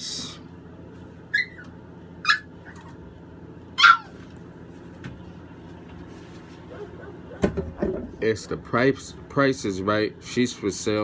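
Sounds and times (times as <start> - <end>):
puppy yelping: 1.3 - 3.0, 3.7 - 4.4, 6.6 - 7.6.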